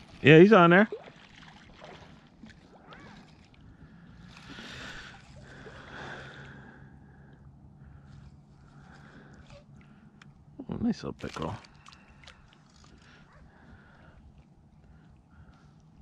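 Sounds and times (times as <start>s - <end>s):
lake water sloshing: 0.0s - 6.9s, 11.1s - 16.0s.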